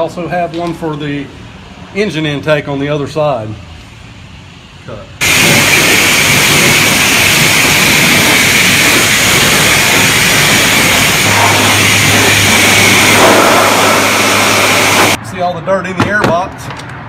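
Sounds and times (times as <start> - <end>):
pressure washer spray hissing: 5.2 - 15.2.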